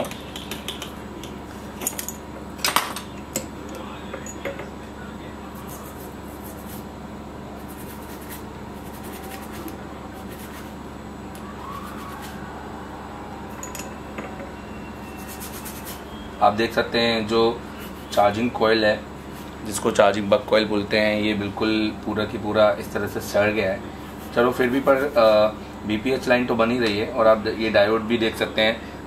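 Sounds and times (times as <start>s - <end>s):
steady low hum: 0.0s - 29.0s
small tools clicking and clinking: 13.6s - 14.4s.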